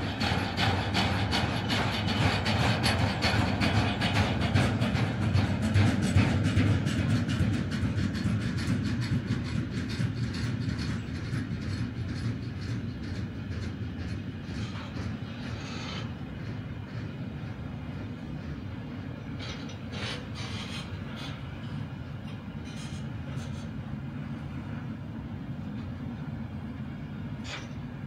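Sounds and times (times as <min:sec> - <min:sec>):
train rumble: 0:00.0 - 0:28.0
train wheels clicking on rails: 0:00.0 - 0:28.0.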